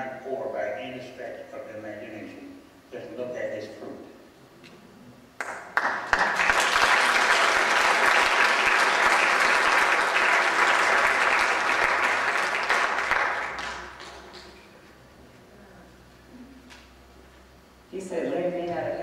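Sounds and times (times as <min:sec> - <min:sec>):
audience applauding: 0:05.4 - 0:14.6.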